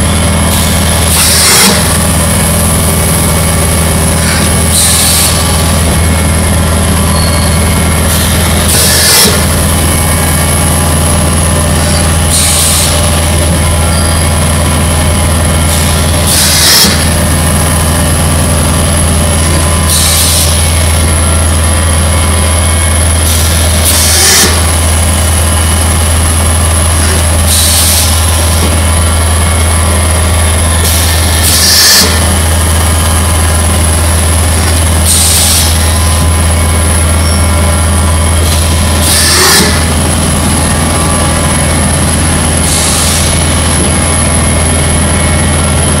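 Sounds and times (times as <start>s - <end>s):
moulding machine droning: 0.0s - 46.0s
compressed-air hiss: 12.3s - 13.0s, 15.7s - 17.1s, 27.5s - 28.6s, 35.0s - 35.8s.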